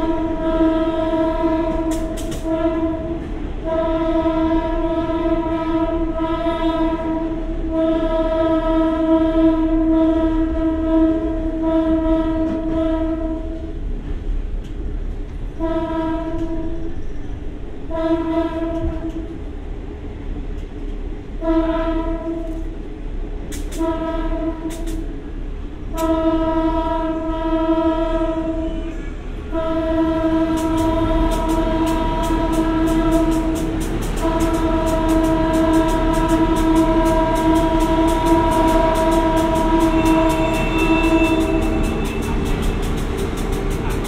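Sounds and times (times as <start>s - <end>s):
train horn blasts: 0.0s - 13.8s, 15.5s - 17.0s, 17.8s - 19.4s, 21.4s - 22.8s, 23.7s - 25.1s, 25.9s - 44.0s
diesel railcar idling: 0.0s - 44.0s
rapid high ticking: 30.4s - 44.0s.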